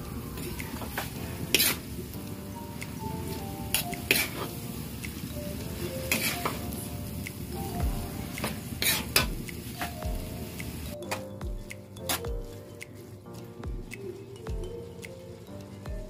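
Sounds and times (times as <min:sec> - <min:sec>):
wok sizzling: 0:00.0 - 0:11.1.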